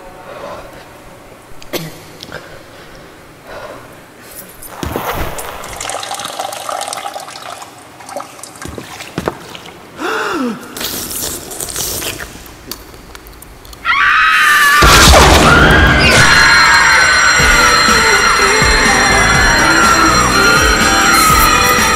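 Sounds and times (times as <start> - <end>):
liquid bubbling and trickling: 5.1 - 9.9
sliding high tones: 16.2 - 21.9
loud music: 16.4 - 21.9.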